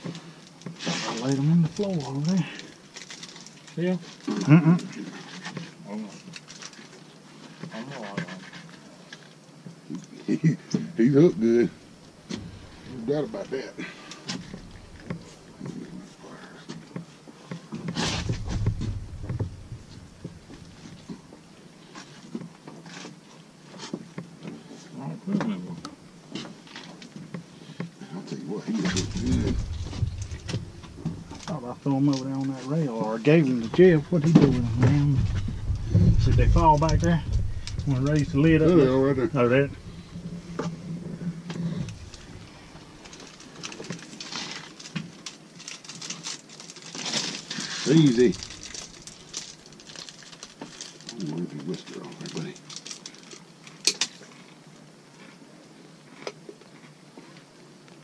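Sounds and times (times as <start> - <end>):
low hum: 11.7 - 13.2, 14.4 - 16.1, 18.0 - 21.3, 28.8 - 31.9, 33.4 - 43.4, 48.0 - 49.8
knocks and thumps on boat floor: 17.8 - 20.8, 33.8 - 38.6.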